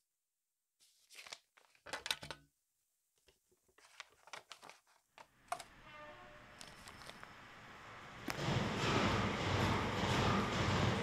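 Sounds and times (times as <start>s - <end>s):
paper rustling and tearing: 0.8s - 2.1s, 3.8s - 5.6s, 6.6s - 7.3s
low hum: 5.5s - 11.0s.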